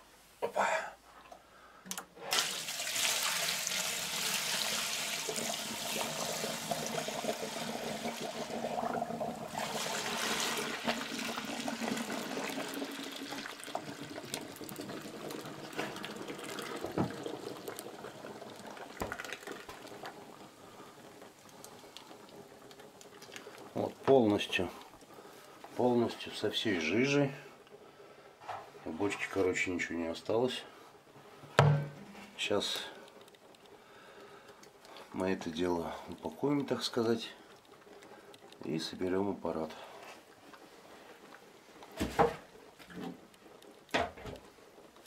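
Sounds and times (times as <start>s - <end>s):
liquid mash pouring and splashing: 2.2s - 26.4s, 34.6s - 45.0s.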